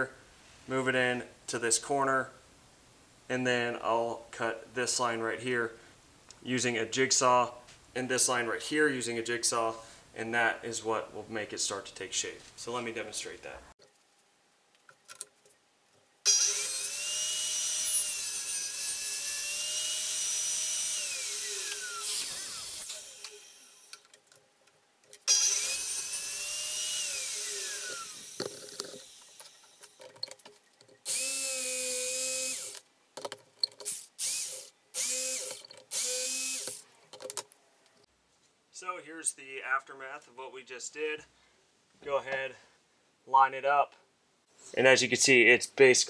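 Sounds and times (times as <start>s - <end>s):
table saw cutting plank: 16.3s - 23.9s, 25.3s - 29.8s
jigsaw cutting: 16.3s - 24.0s, 25.3s - 29.9s, 31.1s - 32.8s, 33.9s - 36.8s.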